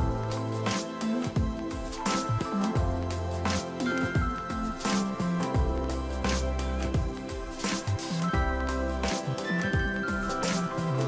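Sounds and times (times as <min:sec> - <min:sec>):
instrumental music with bass line: 0:00.0 - 0:11.0.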